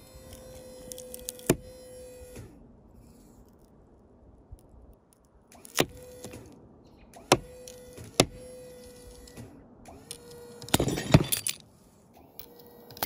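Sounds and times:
mid-pitched hum: 0:00.0 - 0:13.0.

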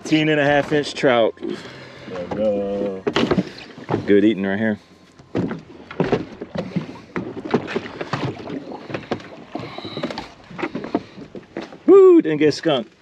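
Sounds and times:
knocks and thumps of fish handling: 0:02.1 - 0:04.3, 0:05.2 - 0:11.9.

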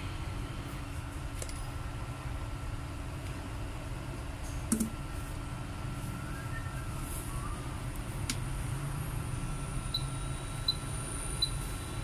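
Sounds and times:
faint high whine: 0:04.9 - 0:12.0.

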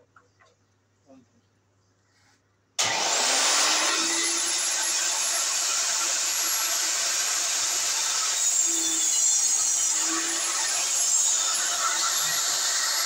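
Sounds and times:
table saw cutting board: 0:02.8 - 0:13.0.

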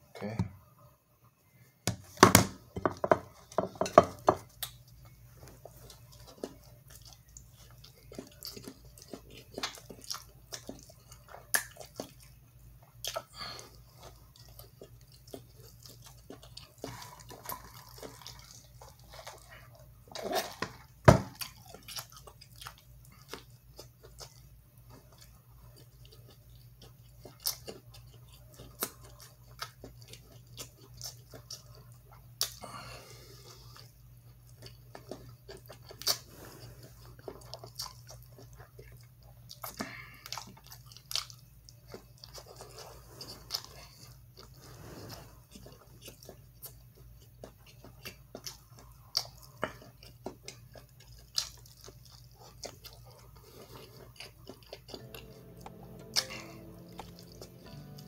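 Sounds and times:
wet chewing and biting: 0:04.1 - 0:32.6, 0:33.6 - 0:58.0
steady low hum: 0:52.9 - 0:58.0.

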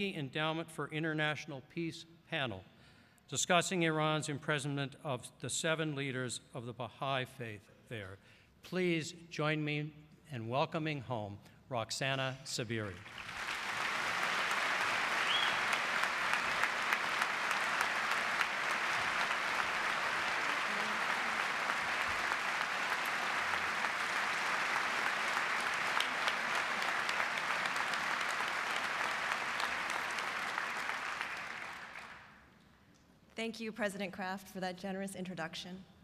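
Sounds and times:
audience applauding: 0:12.9 - 0:32.4.

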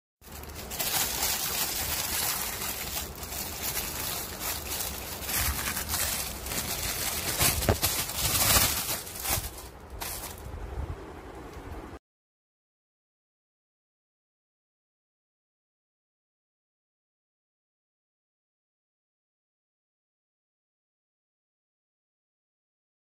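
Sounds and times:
plastic packaging crinkling: 0:00.2 - 0:10.5.

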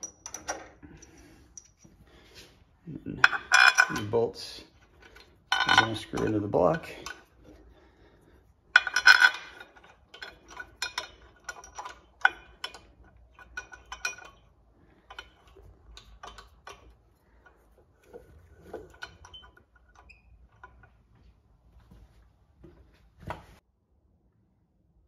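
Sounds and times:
metal bolts and socket tool clinking: 0:00.0 - 0:02.0, 0:03.2 - 0:07.6, 0:08.7 - 0:20.9.

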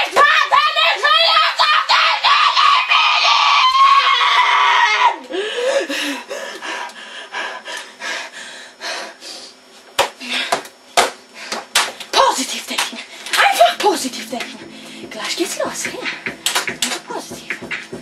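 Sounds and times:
boy screaming: 0:00.1 - 0:05.2
keyboard tapping and knocking: 0:14.4 - 0:18.0.

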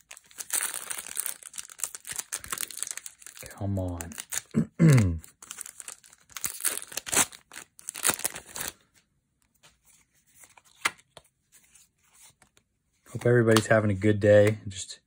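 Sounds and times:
foil wrapper crinkling and tearing: 0:00.0 - 0:04.6, 0:05.2 - 0:08.9.

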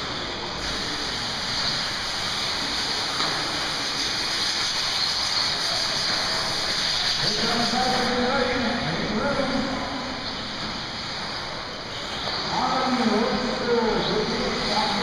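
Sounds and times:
rc cars whirring on dirt track: 0:00.0 - 0:08.6.

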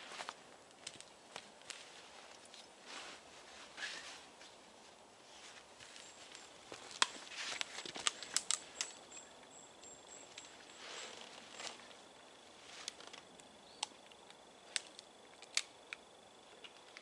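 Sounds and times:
footsteps on forest floor: 0:00.0 - 0:04.6, 0:05.3 - 0:08.8, 0:10.2 - 0:13.2
rucksack and clothing rustling: 0:00.0 - 0:09.2, 0:10.2 - 0:13.3.

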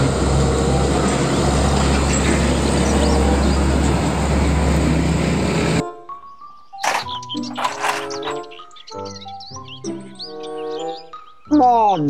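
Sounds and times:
road and tyre noise: 0:00.0 - 0:05.8, 0:06.8 - 0:08.5
truck diesel engine hum: 0:00.0 - 0:05.8.

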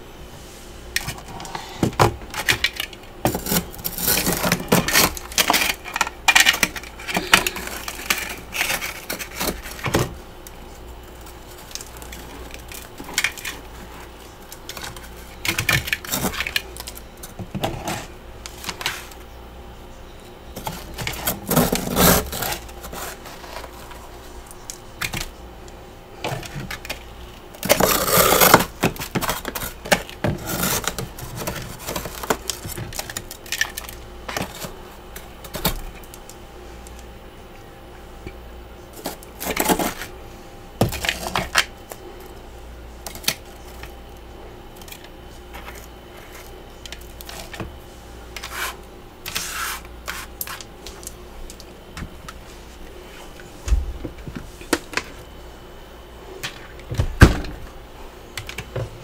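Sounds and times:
plastic scraper scraping frost: 0:03.3 - 0:10.0, 0:20.6 - 0:24.1, 0:27.6 - 0:33.1, 0:39.0 - 0:40.1, 0:48.4 - 0:50.7.

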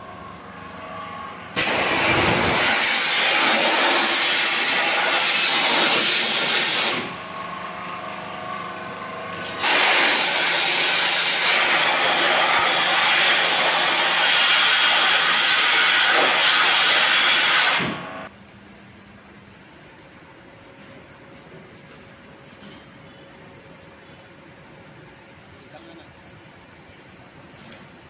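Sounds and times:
water jet hissing on metal: 0:01.6 - 0:07.1, 0:09.6 - 0:18.3.

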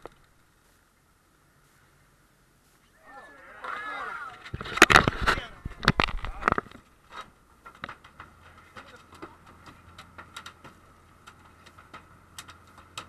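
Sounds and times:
light taps and knocks: 0:04.6 - 0:13.0
boat engine humming: 0:06.8 - 0:13.0.

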